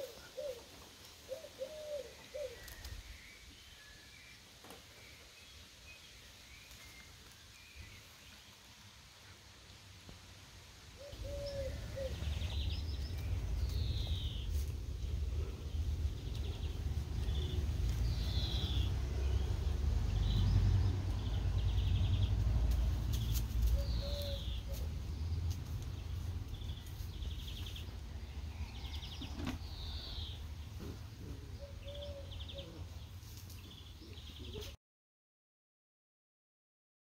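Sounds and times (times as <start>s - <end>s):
birds singing: 0.0s - 8.6s, 11.0s - 34.8s
low rumble: 11.1s - 31.7s.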